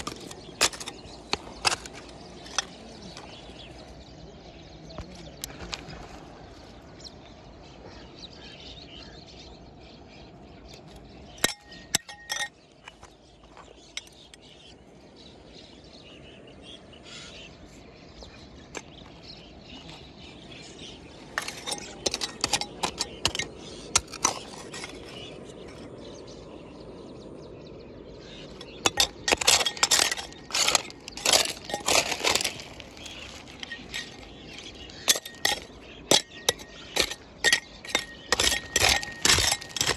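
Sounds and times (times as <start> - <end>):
stones clinking as gravel is raked: 0.0 - 3.8, 11.4 - 14.5, 21.3 - 25.7, 28.5 - 39.9.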